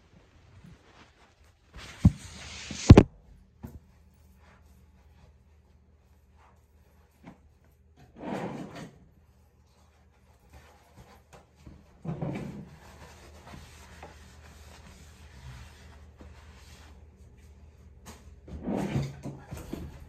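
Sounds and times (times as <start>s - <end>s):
muffled scraping: 0.3s - 3.1s.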